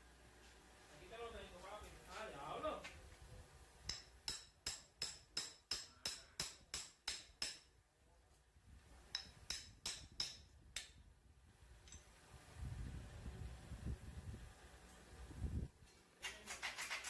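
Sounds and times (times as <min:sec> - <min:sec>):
hammer striking steel drift: 0:03.9 - 0:07.7.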